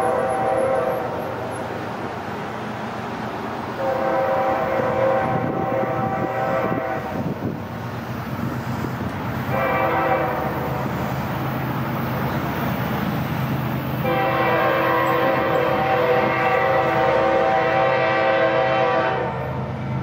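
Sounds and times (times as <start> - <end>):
locomotive air horn blasts: 0.0 - 1.3, 3.8 - 7.4, 9.5 - 10.9, 14.0 - 19.6
train rumbling: 0.0 - 20.0.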